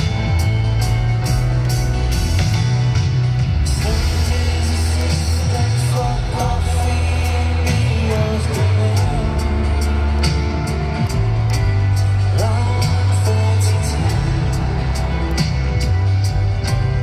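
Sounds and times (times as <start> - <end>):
bass notes: 0.0 - 17.0
drums and cymbals: 0.0 - 17.0
electric guitar: 0.0 - 17.0
man singing: 3.6 - 11.1, 12.0 - 16.0.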